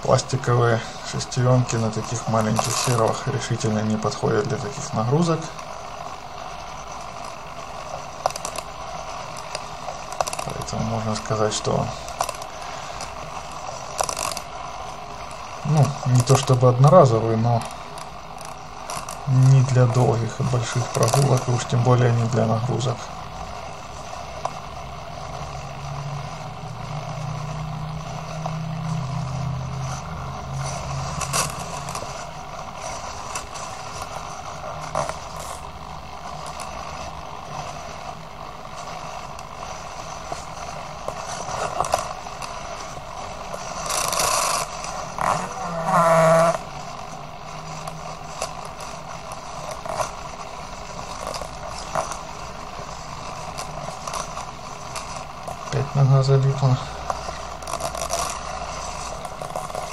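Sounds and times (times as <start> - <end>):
plastic gears grinding: 8.1 - 24.7, 27.4 - 56.0, 56.6 - 59.9
servo screech: 44.0 - 46.7.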